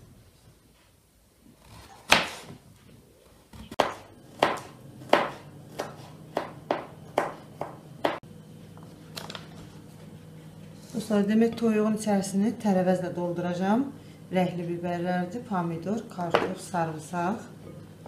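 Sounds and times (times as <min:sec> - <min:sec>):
knife chopping on wooden board: 0:01.7 - 0:02.6, 0:03.6 - 0:08.2.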